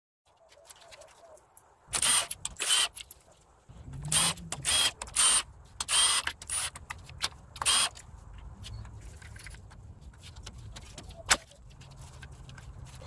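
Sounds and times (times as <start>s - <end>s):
impact tool bursts: 1.9s - 3.0s.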